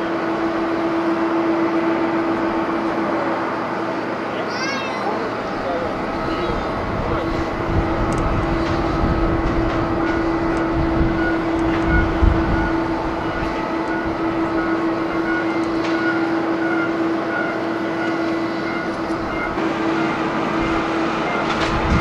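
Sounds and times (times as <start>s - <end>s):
jet engines droning: 0.0s - 22.0s
wind rumble on microphone: 6.1s - 14.6s, 21.5s - 22.0s.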